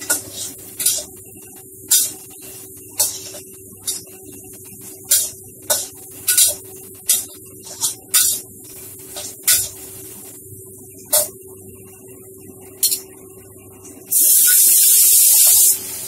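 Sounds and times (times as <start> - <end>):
metal spatula scraping wok: 0.0 - 1.1, 3.0 - 4.1
steady low hum: 0.0 - 14.2.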